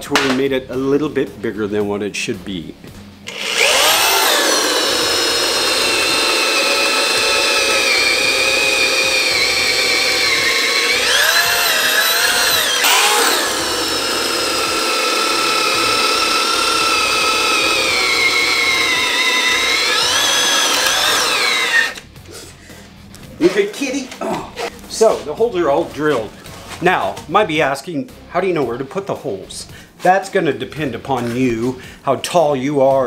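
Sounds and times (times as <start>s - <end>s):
drill boring into wood: 3.3s - 22.0s.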